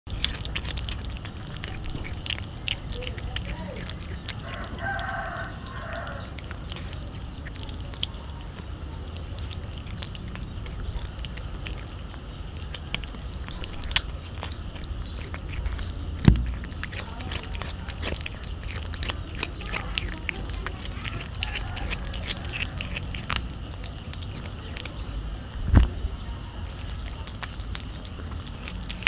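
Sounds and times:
cat chewing and licking: 0.0s - 29.0s
sharp knock: 16.2s - 16.6s.

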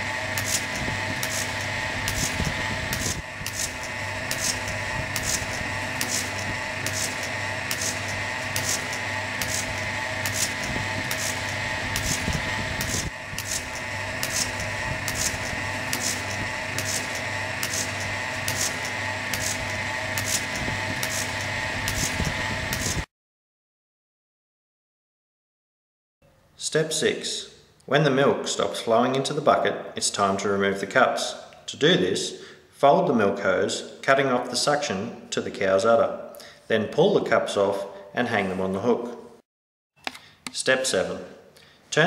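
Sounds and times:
milking machine motor hum: 0.0s - 23.1s.

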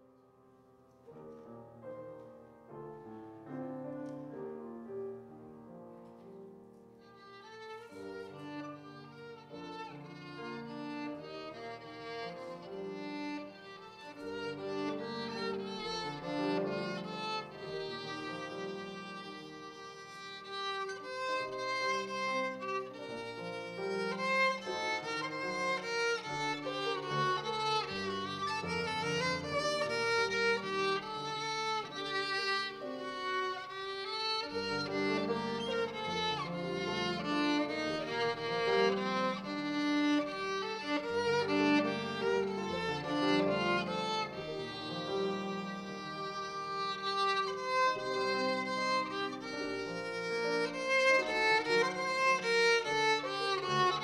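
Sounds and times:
grand piano playing: 0.0s - 54.0s
violin playing: 6.1s - 54.0s.

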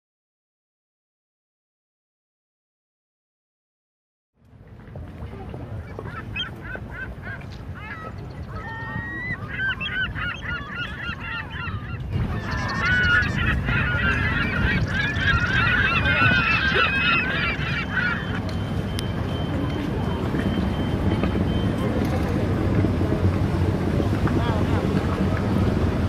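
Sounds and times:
steady low rumble: 4.5s - 26.0s
flock of birds chirping and honking: 5.4s - 22.4s.

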